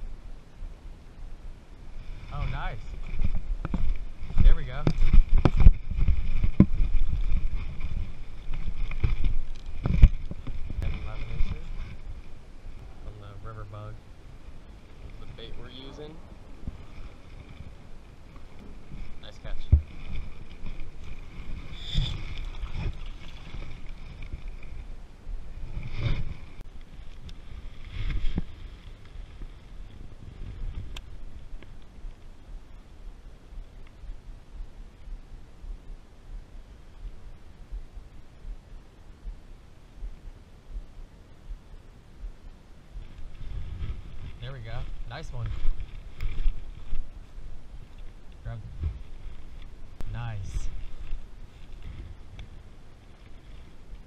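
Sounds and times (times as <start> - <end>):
handling rumble on microphone: 1.8 - 39.4, 40.0 - 54.0.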